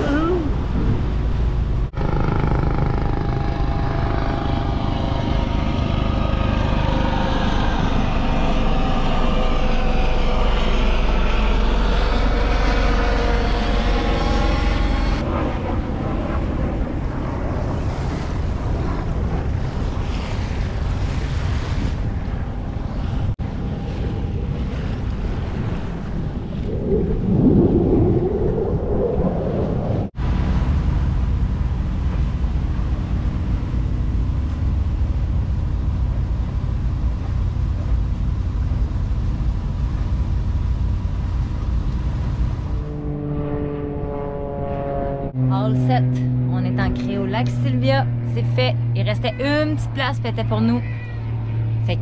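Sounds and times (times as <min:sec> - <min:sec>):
water rushing past boat: 0:00.0 - 0:52.0
helicopter flying past: 0:02.0 - 0:30.0, 0:42.0 - 0:52.0
wind rushing past: 0:17.7 - 0:30.5.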